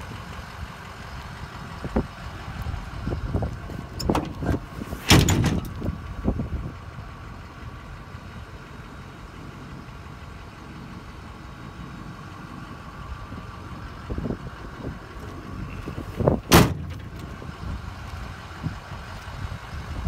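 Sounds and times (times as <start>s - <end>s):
metal tailgate clanking open: 3.9s - 6.0s, 16.3s - 17.3s.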